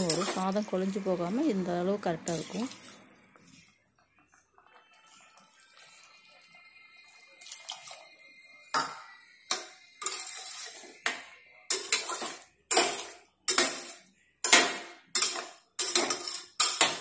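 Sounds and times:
spatula scraping metal pot: 0.0 - 0.8, 9.5 - 17.0.

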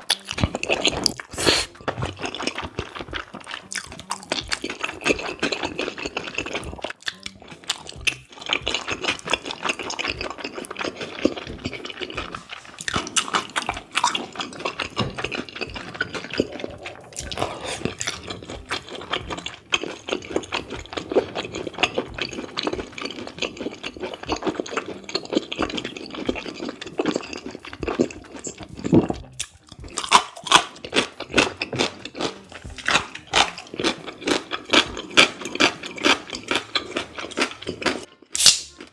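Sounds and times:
wet chewing mouth clicks: 0.0 - 38.9.

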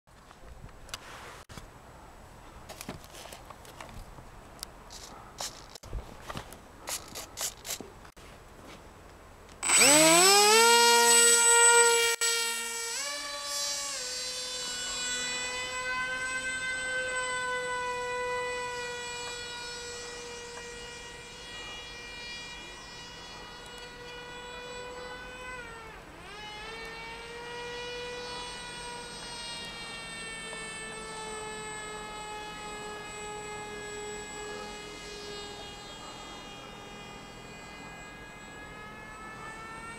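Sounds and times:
handling clicks and rustles: 2.6 - 9.6
electric motor propeller whine: 9.6 - 39.9.

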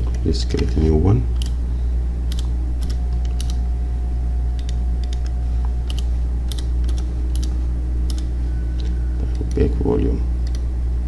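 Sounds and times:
low electrical hum: 0.0 - 11.0
keyboard keys clicking: 2.3 - 3.6.

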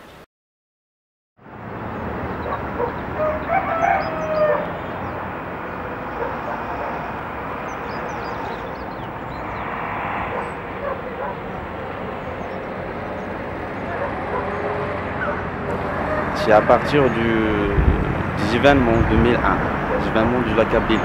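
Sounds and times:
rooster crowing: 2.5 - 5.1, 13.9 - 16.6
steady outdoor hiss: 15.6 - 21.0.

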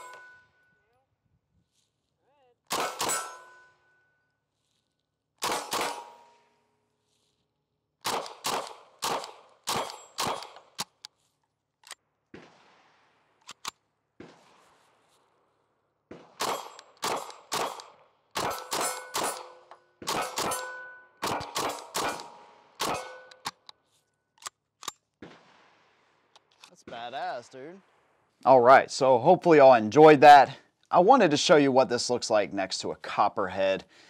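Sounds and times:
pistol shots: 2.7 - 3.7, 5.4 - 6.6, 8.0 - 11.0, 12.3 - 15.0, 16.1 - 23.6, 25.2 - 27.0.

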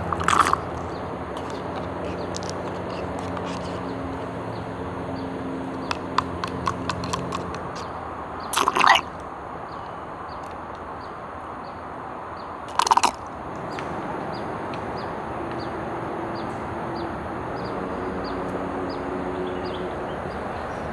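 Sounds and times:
small wet clicks: 0.0 - 3.9, 5.8 - 7.9, 8.5 - 9.3, 12.7 - 13.8
straw slurping drink: 0.0 - 3.9, 5.9 - 7.9, 8.5 - 9.1, 12.7 - 13.2.

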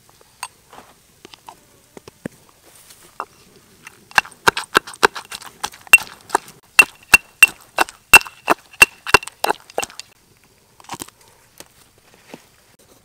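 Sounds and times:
stone pestle pounding in mortar: 4.1 - 10.0.

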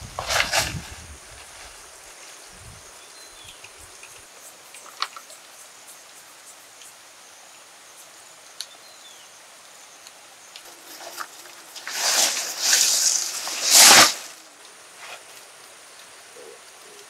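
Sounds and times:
high insect drone: 0.0 - 17.0.

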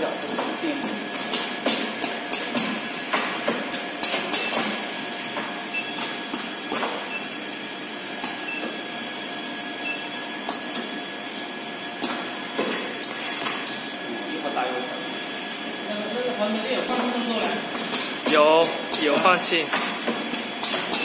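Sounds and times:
machine clicking and clacking: 16.9 - 21.0.

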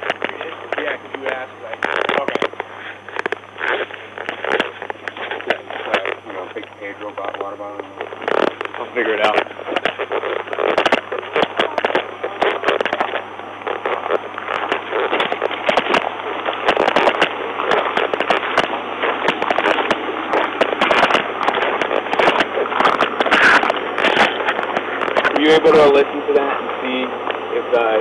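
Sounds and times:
low hum: 0.0 - 28.0
radio static crackling hiss: 0.0 - 28.0.

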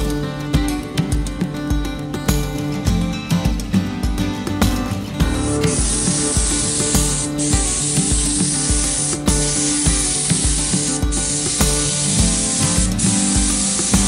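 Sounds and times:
background music with a beat: 0.0 - 14.0
spray gun hissing: 5.4 - 14.0.

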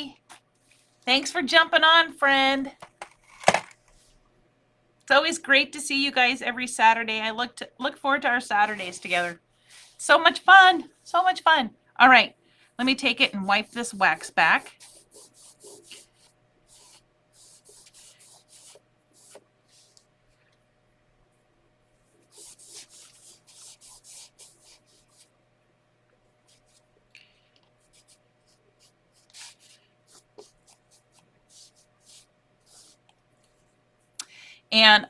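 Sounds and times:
cloth rubbing on waxed surface: 12.9 - 20.1, 22.0 - 25.3, 27.9 - 33.0.

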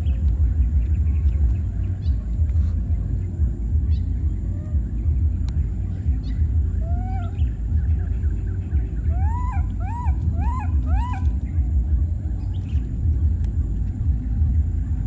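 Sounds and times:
steady low rumble: 0.0 - 15.0
baby monkey coo calls: 6.7 - 8.1, 8.9 - 11.4.

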